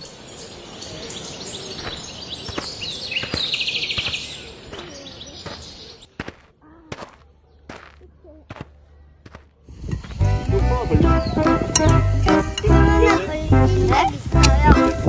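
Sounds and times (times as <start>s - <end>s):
steady high hiss: 0.0s - 4.7s
birds chirping and calling: 0.0s - 6.3s, 10.1s - 15.0s.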